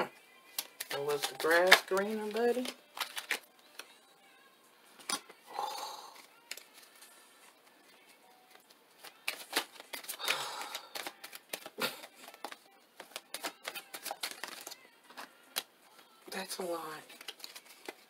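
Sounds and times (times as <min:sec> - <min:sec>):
cards being shuffled: 0:00.5 - 0:03.9, 0:06.2 - 0:07.1, 0:08.5 - 0:15.7, 0:17.0 - 0:18.0.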